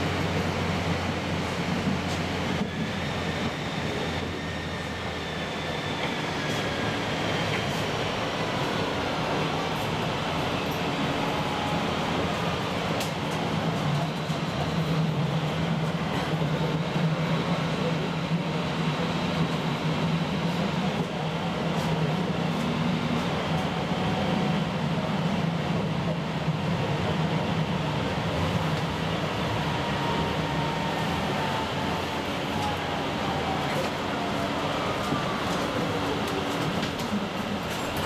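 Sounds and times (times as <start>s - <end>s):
tram rumbling along track: 0.0s - 38.0s.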